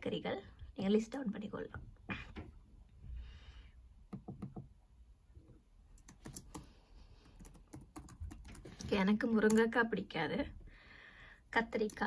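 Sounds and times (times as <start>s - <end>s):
laptop keyboard typing: 4.1s - 4.7s, 6.0s - 9.7s.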